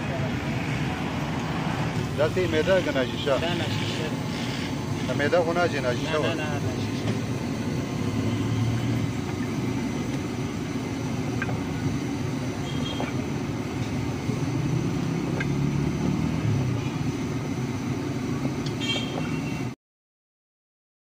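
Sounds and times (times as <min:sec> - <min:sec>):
low background rumble: 0:00.0 - 0:18.7.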